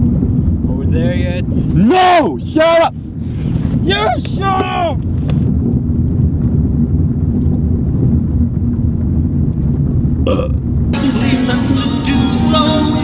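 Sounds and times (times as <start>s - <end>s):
car engine and tyres rumbling: 0.0s - 13.0s.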